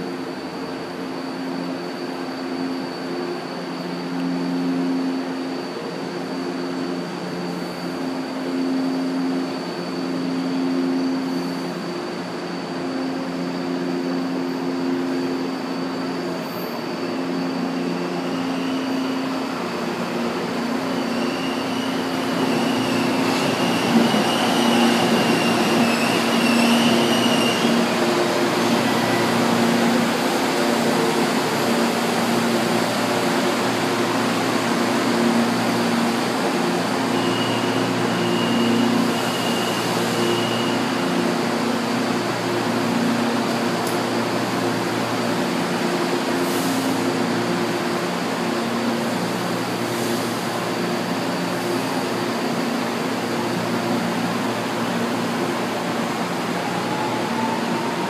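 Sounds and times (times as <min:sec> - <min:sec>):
electric trains running: 0:00.0 - 0:58.0
train wheels squealing: 0:00.3 - 0:43.1, 0:54.8 - 0:58.0.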